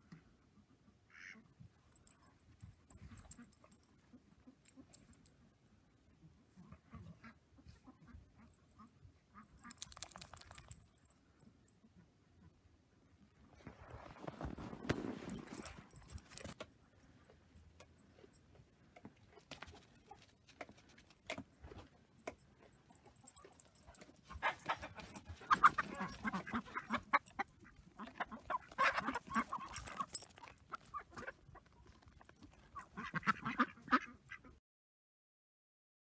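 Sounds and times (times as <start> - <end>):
faint scattered ticks: 9.6 - 11.1
ducks quacking: 24.3 - 30.1, 32.7 - 34.6.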